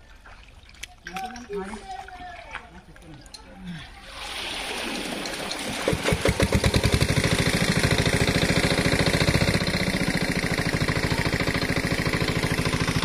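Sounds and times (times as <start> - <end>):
small pump engine starting up: 4.1 - 13.0.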